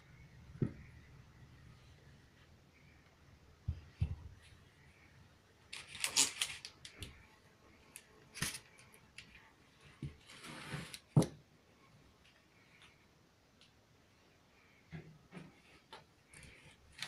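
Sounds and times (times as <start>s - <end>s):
crackling rustle: 5.7s - 7.2s.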